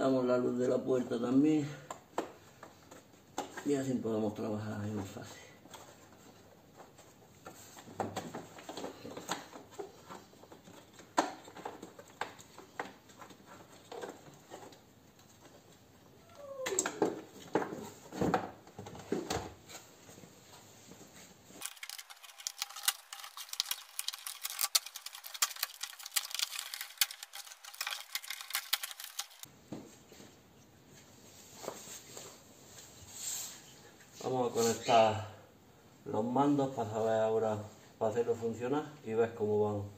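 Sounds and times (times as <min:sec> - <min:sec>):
plastic panel clicks and clatter: 0:21.6 - 0:29.5.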